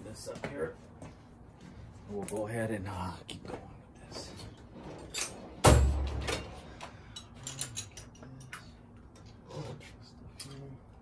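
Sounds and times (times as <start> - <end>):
tools clicking and knocking: 5.2 - 9.4.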